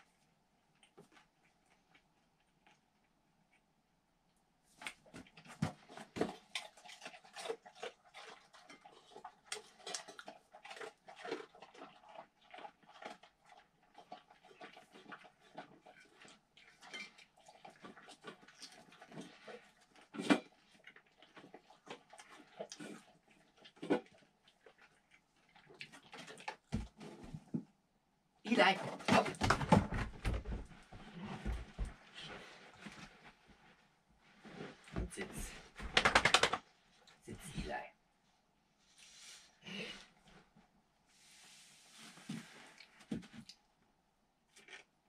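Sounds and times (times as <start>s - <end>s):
dog eating and licking: 5.6s - 26.8s.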